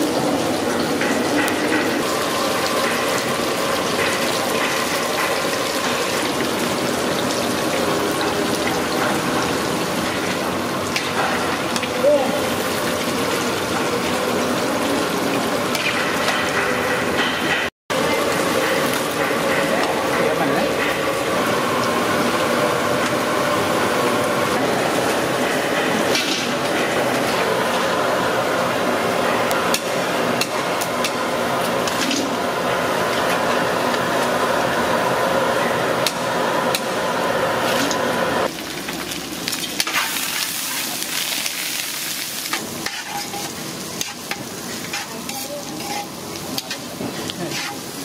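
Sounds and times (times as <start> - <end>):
oil sizzling and bubbling: 0.0 - 48.0
skimmer scooping fried pieces: 39.0 - 48.0.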